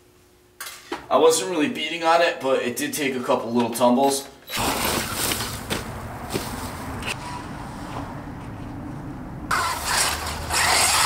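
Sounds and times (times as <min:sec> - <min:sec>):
rc truck driving over gravel: 0:04.5 - 0:06.7, 0:09.5 - 0:11.0.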